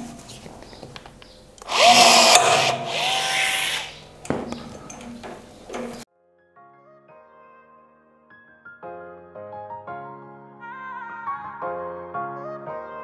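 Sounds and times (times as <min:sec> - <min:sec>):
rivet gun motor whine: 0:01.6 - 0:04.0.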